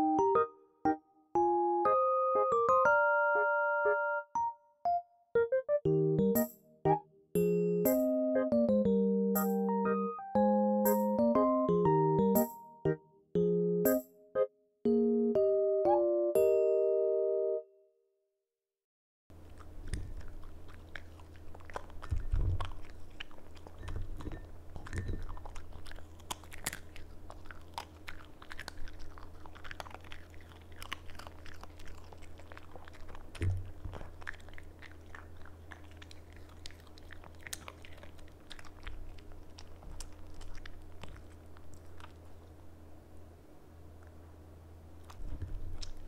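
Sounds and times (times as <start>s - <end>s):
dog chewing treat: 19.4s - 42.7s, 45.0s - 46.0s
wet mouth clicks and smacks: 19.6s - 42.3s.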